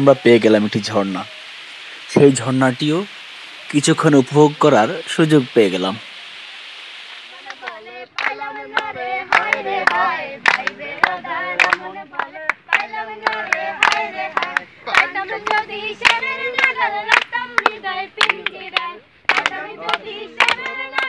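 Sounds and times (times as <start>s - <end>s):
people singing: 7.3s - 21.0s
sharp hand claps: 7.4s - 21.0s.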